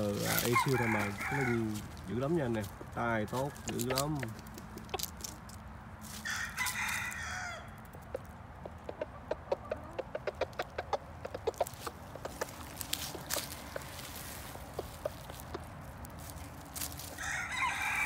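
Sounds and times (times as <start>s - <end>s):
chicken clucking: 0.0s - 5.6s, 6.6s - 17.8s
rooster crowing: 0.2s - 1.8s, 6.2s - 7.8s, 17.1s - 18.0s.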